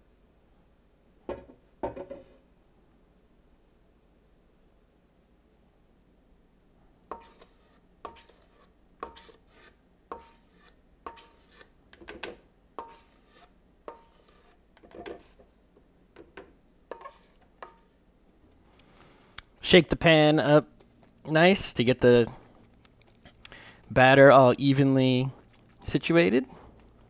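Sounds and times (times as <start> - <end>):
spatula knocking in metal bowl: 12.0 - 13.0, 16.2 - 17.8.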